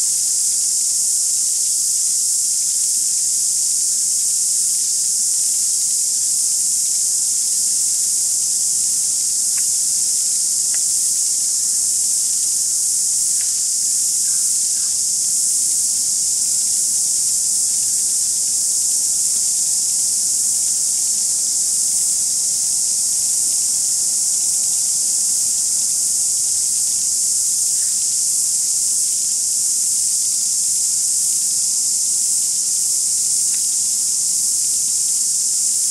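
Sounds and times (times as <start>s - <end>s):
high-pitched insect chorus: 0.0s - 35.9s
faint ticks: 9.5s - 11.4s, 13.3s - 14.9s, 33.5s - 33.8s.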